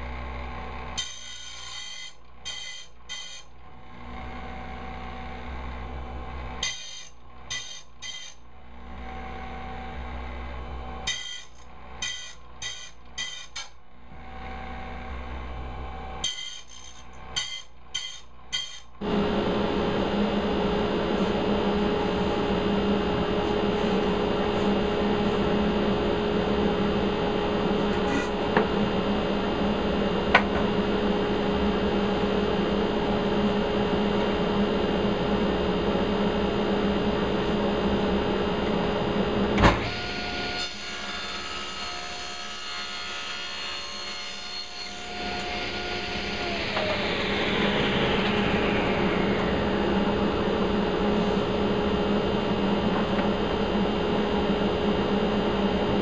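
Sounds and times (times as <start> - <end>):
shop machinery hum: 0.0 - 56.0
falling tone: 45.2 - 52.1.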